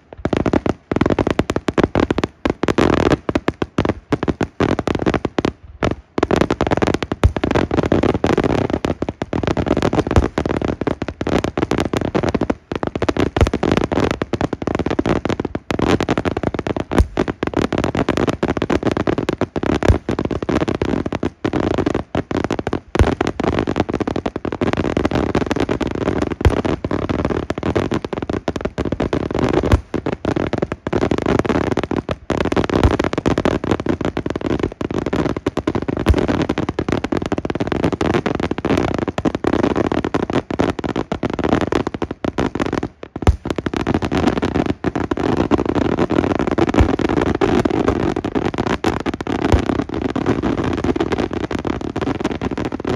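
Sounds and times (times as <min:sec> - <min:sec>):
fireworks bangs and crackling: 0:00.0 - 0:52.9
fireworks booms: 0:03.9 - 0:22.0, 0:43.2 - 0:51.1.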